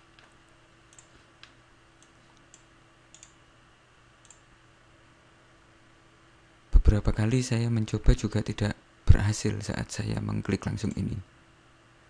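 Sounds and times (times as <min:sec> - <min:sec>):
faint hum: 0:00.0 - 0:12.0
computer mouse clicks: 0:00.2 - 0:03.4, 0:04.2 - 0:04.4.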